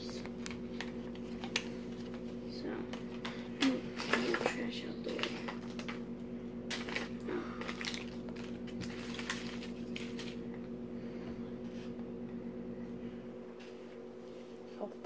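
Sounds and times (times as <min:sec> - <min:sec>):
steady low hum: 0:00.0 - 0:15.0
plastic wrappers crinkling: 0:00.3 - 0:02.3, 0:02.9 - 0:06.0, 0:06.7 - 0:10.5.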